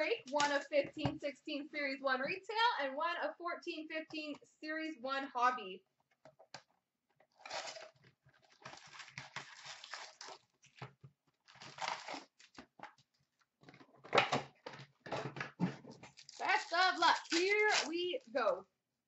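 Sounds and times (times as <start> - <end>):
cardboard box tearing open: 7.4 - 7.9, 8.5 - 10.5, 11.5 - 12.6, 16.1 - 17.9
packs rustling: 7.4 - 10.9.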